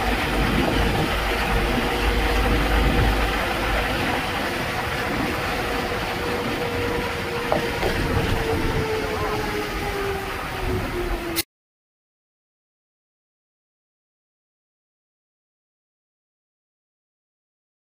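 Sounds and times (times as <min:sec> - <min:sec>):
road and wind noise of vehicle: 0:00.0 - 0:11.4.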